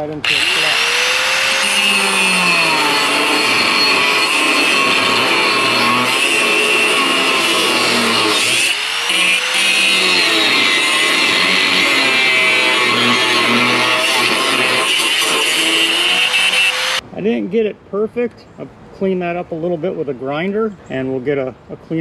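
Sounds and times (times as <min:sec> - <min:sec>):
angle grinder cutting steel: 0:00.0 - 0:17.0.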